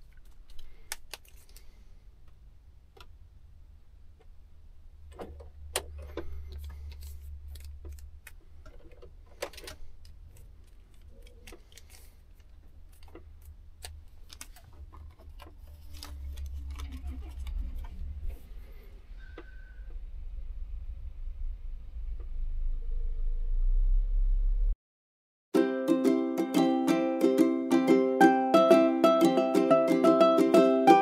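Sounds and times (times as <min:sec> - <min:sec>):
low engine rumble: 0:03.4 - 0:13.3, 0:14.6 - 0:24.8.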